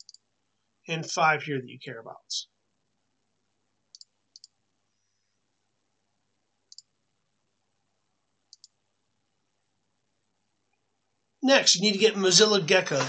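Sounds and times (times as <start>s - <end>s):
computer mouse clicking: 0.0s - 0.2s, 3.9s - 4.6s, 6.7s - 7.0s, 8.5s - 8.8s.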